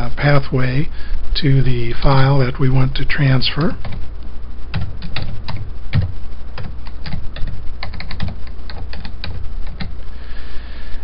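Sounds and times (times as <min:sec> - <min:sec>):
steady low hum: 0:00.0 - 0:11.0
keyboard typing clicks: 0:04.7 - 0:09.9.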